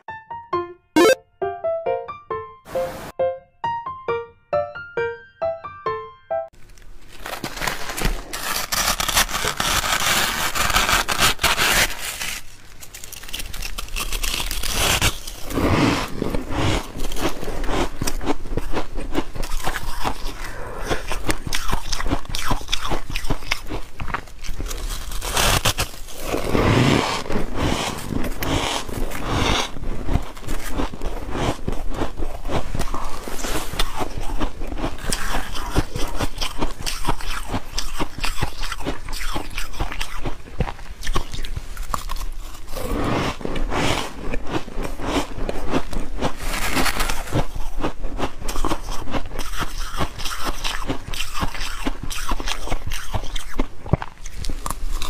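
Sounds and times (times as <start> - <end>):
ice crunching: 6.7 - 16.2, 44.8 - 47.6.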